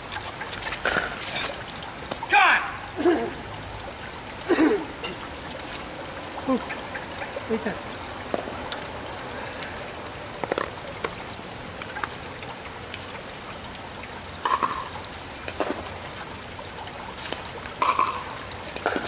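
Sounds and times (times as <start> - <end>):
ball bouncing on wet court: 0.0 - 2.3, 6.4 - 8.8, 10.4 - 12.2, 14.4 - 16.4, 17.1 - 19.0
light rain: 0.0 - 19.0
paddle hitting ball: 17.8 - 19.0.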